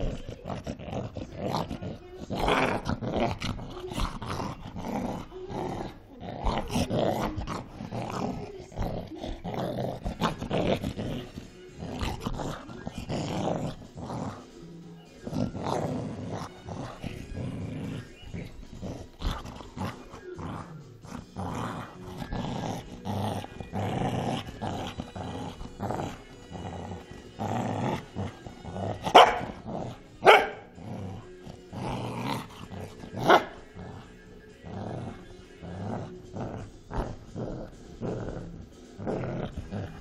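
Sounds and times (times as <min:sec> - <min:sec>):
dog growling: 0:00.0 - 0:40.0
dog barking: 0:29.1 - 0:29.6, 0:30.2 - 0:30.7, 0:33.2 - 0:33.5.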